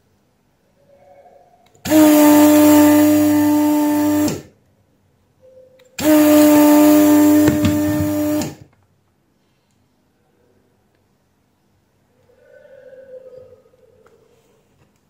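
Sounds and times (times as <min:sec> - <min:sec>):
vacuum pump humming and hissing: 0:01.8 - 0:04.6, 0:06.0 - 0:08.7.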